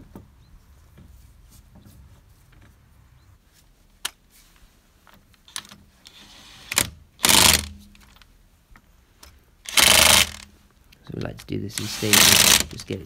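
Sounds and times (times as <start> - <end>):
impact gun rattling: 6.7 - 8.2, 9.7 - 10.5, 11.8 - 12.7.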